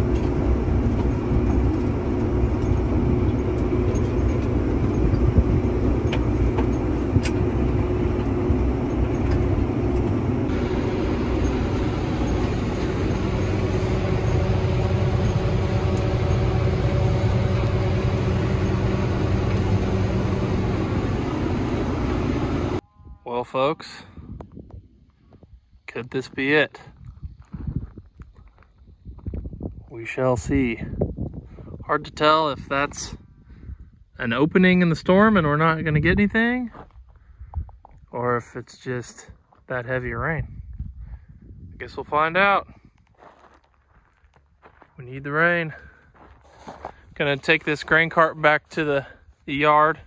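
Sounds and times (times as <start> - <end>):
tractor engine running: 0.0 - 22.8, 45.1 - 50.0.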